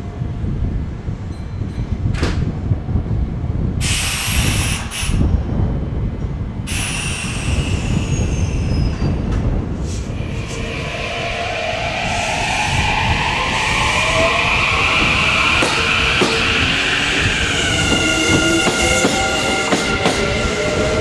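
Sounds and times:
train low rumble: 0.0 - 21.0
air hiss: 3.8 - 5.3, 6.7 - 8.9
high tone gliding downward: 10.2 - 21.0.

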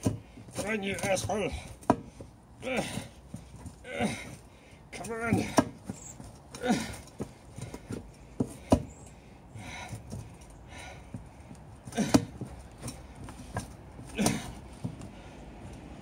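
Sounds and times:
shoes stamping on a tyre: 0.0 - 16.0
grunts of effort: 2.6 - 3.2, 3.8 - 5.8, 6.5 - 7.9, 11.8 - 13.1, 14.0 - 15.3.

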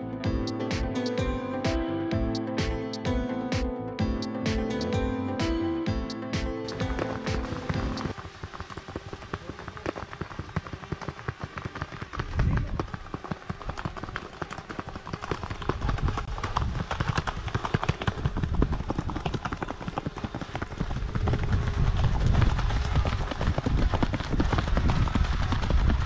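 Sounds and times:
horse hooves on dirt: 6.7 - 26.0.

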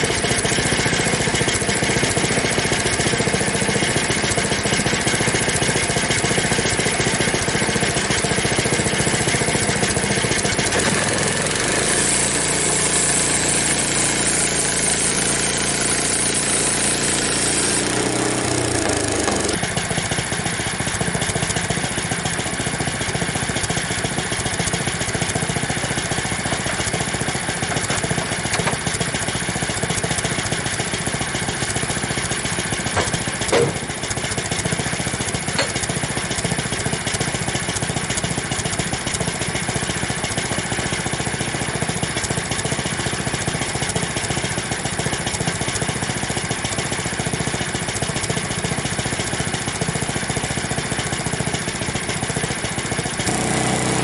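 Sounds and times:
small gasoline engine idling: 0.0 - 54.0
sharp knock: 33.0 - 33.9.

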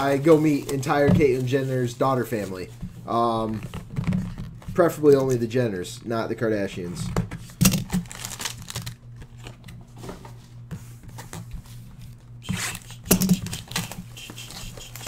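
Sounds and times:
card packs rustling: 0.0 - 5.6, 7.5 - 9.7, 12.6 - 15.0
wrapping tearing and crinkling: 7.6 - 9.5, 12.6 - 15.0.

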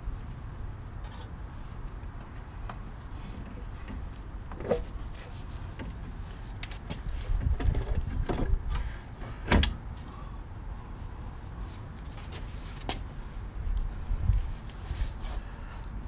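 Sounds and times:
clunks and knocks of car parts: 6.9 - 9.8.

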